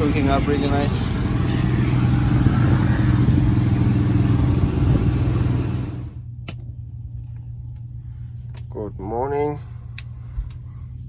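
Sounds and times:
motorcycle engines revving: 0:00.0 - 0:06.2
low hum: 0:00.0 - 0:11.0.

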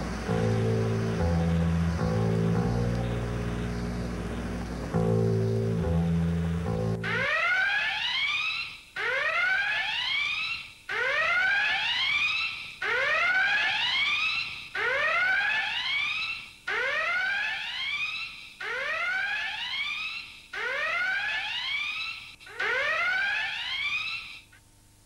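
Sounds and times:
electronic whooping alarm: 0:04.9 - 0:24.4.

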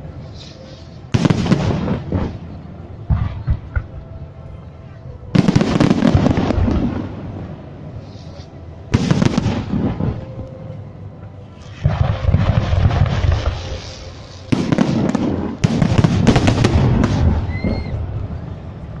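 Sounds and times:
fireworks crackle: 0:00.0 - 0:04.0, 0:05.3 - 0:10.6, 0:11.6 - 0:19.0
fireworks bangs: 0:00.4 - 0:04.0, 0:05.3 - 0:07.5, 0:08.9 - 0:10.4, 0:11.6 - 0:18.3.

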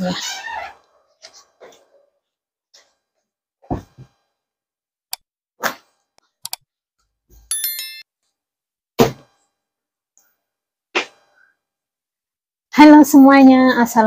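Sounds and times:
electronic bell chime: 0:07.5 - 0:08.1.

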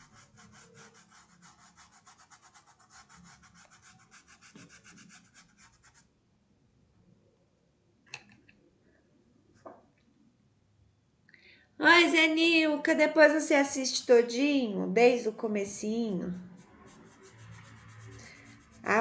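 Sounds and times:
paintbrush scrubbing on cloth: 0:00.0 - 0:06.1, 0:16.3 - 0:19.0.

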